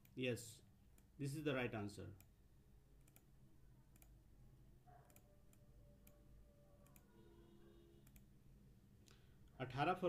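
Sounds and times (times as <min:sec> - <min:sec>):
faint computer mouse clicks: 0:03.0 - 0:03.3, 0:06.8 - 0:07.1.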